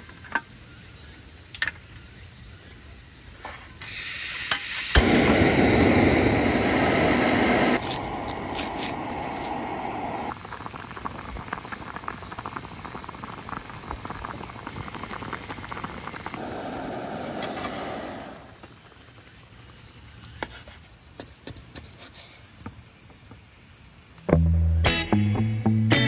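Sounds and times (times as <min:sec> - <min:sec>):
gas stove burner hissing: 0:00.2 - 0:24.3
soup bubbling at a boil: 0:03.9 - 0:24.2.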